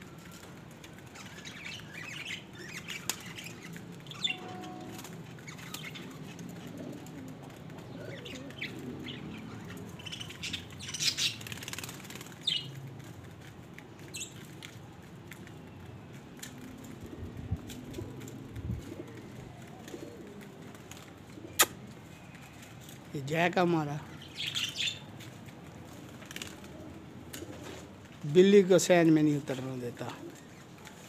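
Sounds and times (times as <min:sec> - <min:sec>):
pigeons pecking: 0:00.0 - 0:31.0
bird chirps: 0:01.1 - 0:06.8, 0:07.8 - 0:11.6, 0:24.1 - 0:25.1
pigeon wing flaps: 0:11.2 - 0:14.8, 0:16.4 - 0:21.9, 0:25.6 - 0:28.0.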